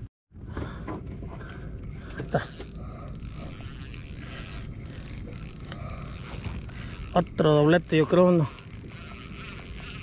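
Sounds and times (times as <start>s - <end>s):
fishing reel gears rattling: 2.2s - 10.0s.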